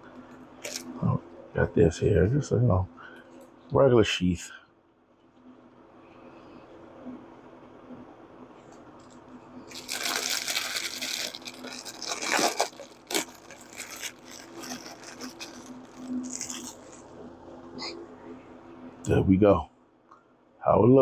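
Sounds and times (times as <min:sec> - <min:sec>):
plastic bag crinkling: 0:00.6 - 0:00.9, 0:09.7 - 0:17.1.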